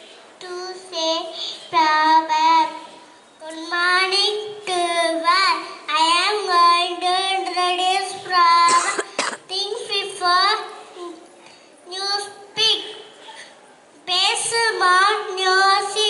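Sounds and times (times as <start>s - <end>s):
child singing into a microphone: 0.4s - 11.2s, 14.0s - 16.0s.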